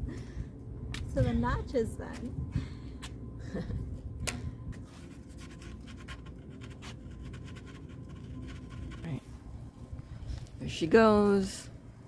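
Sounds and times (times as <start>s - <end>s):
pencil scratching on wood: 5.3s - 9.2s.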